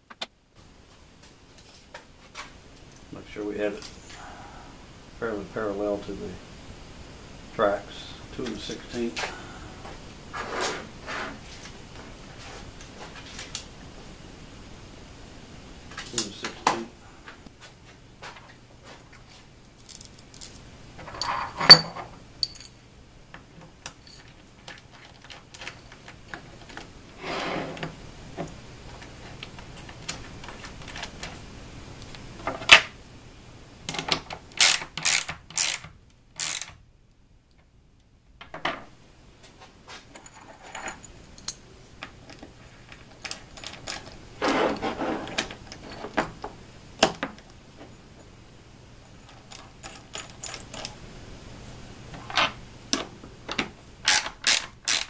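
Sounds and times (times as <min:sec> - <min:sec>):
metal clamps clinking: 0:19.9 - 0:22.8
ratchet wrench clicking: 0:34.6 - 0:35.8, 0:36.4 - 0:36.8, 0:54.1 - 0:55.0.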